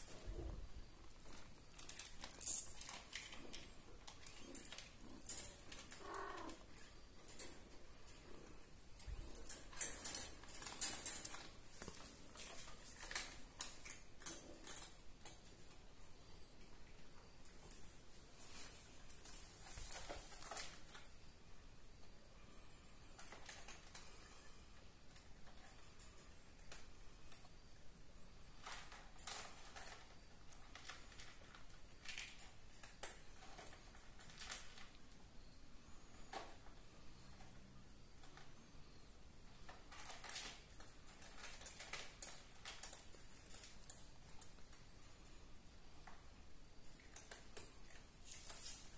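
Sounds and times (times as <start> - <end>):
cats moving in wire cage: 0.0 - 15.9, 17.5 - 21.1, 28.6 - 35.1, 39.6 - 44.9, 47.0 - 48.9.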